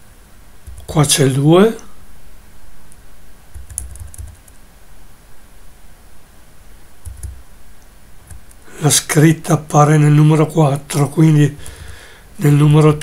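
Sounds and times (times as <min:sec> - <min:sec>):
computer keyboard keystrokes: 0:00.7 - 0:00.9, 0:03.5 - 0:04.6, 0:07.0 - 0:07.4.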